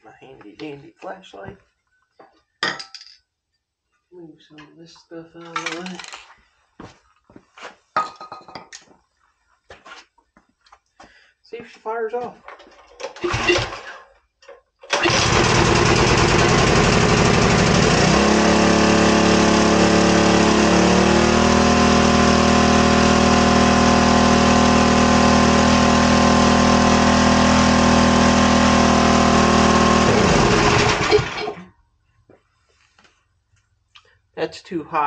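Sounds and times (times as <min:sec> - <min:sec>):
small engine running: 0:13.2 - 0:13.9, 0:14.9 - 0:31.6.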